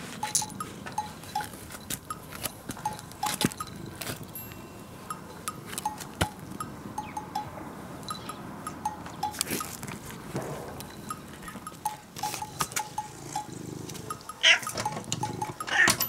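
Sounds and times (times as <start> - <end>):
jingle bell jingling: 0.2 - 9.8.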